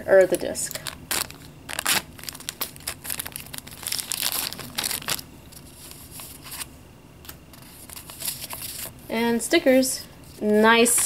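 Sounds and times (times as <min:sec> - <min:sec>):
plastic bag crinkling: 0:00.6 - 0:06.7
paper sheets rustling: 0:01.1 - 0:06.7, 0:07.5 - 0:08.9.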